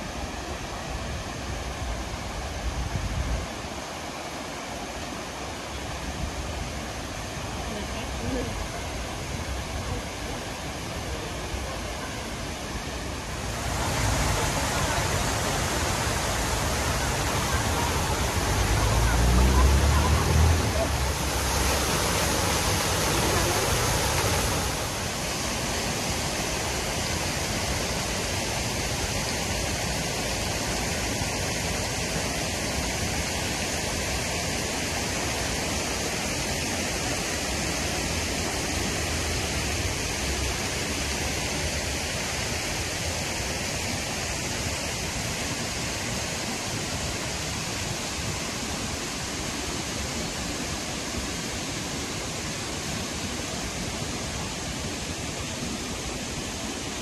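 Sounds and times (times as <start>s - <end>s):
fountain jets splashing: 0.0s - 57.0s.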